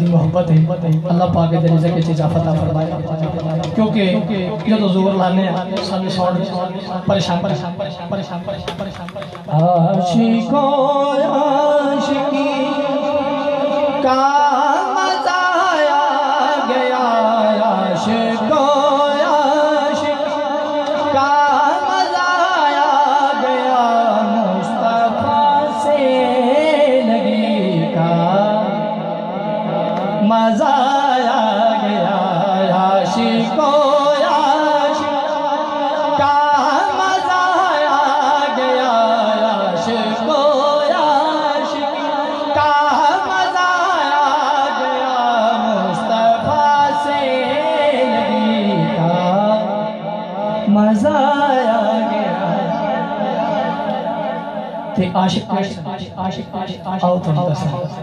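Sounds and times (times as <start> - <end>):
man singing unaccompanied: 0.0 - 58.0.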